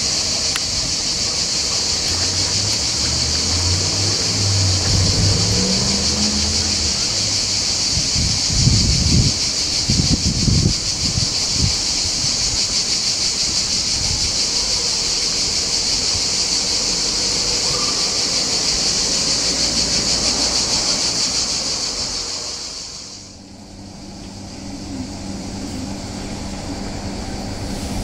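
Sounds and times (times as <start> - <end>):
electric locomotive hum: 0.0 - 28.0
high-pitched shrill buzz: 21.4 - 28.0.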